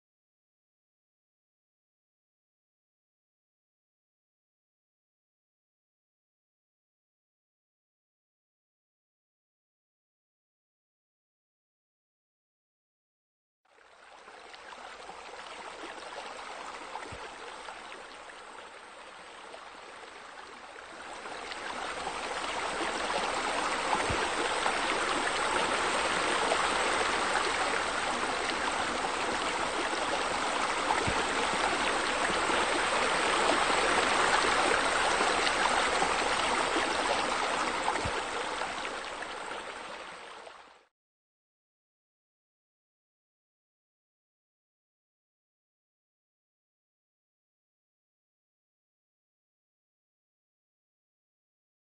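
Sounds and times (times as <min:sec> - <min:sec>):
running water: 0:13.9 - 0:40.8.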